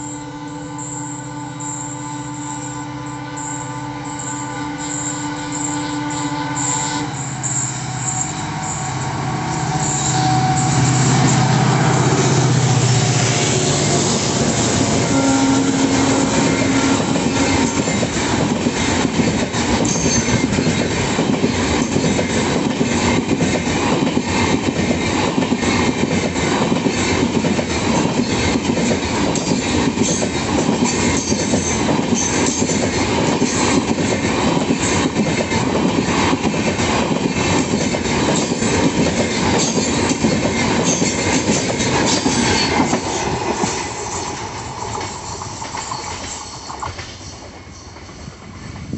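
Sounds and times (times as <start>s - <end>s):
high wheel squeals: 0.0s - 12.7s
train wheels clattering over rail joints: 16.3s - 48.2s.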